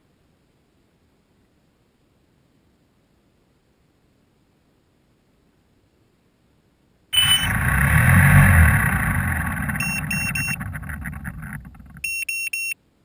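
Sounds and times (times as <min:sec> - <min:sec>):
drone motors and propellers whirring: 0:07.2 - 0:12.2
quick electronic beeps: 0:07.2 - 0:12.8.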